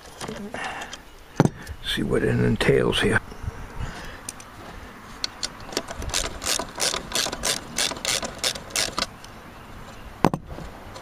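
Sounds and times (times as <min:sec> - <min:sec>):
ratchet wrench ratcheting: 0:05.5 - 0:09.1.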